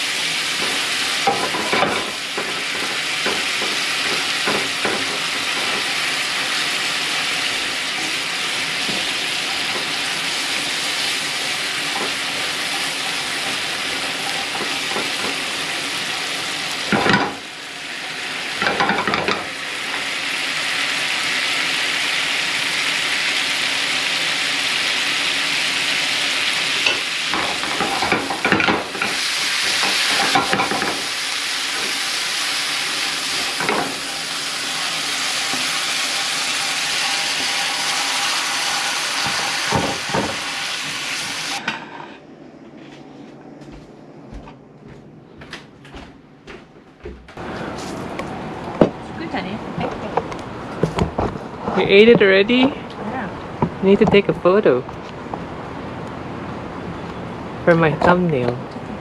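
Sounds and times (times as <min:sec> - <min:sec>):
scallops sizzling in frying pan: 0:00.0 - 0:41.6.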